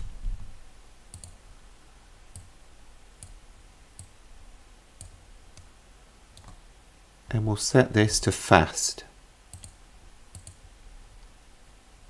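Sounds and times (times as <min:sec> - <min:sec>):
computer mouse clicking: 0:01.1 - 0:01.4, 0:02.3 - 0:02.5, 0:06.4 - 0:06.6, 0:09.5 - 0:10.6.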